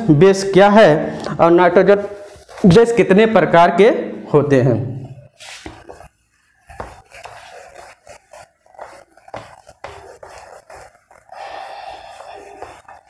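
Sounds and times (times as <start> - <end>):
duster rubbing whiteboard: 2.0 - 3.0, 5.4 - 13.0.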